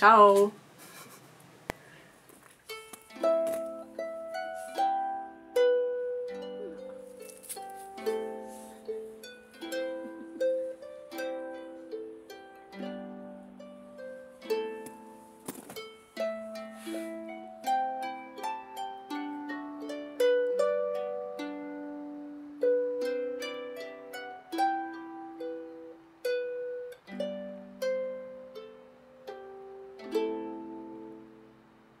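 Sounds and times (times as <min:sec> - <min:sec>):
harp playing slow melody: 0:02.7 - 0:32.0.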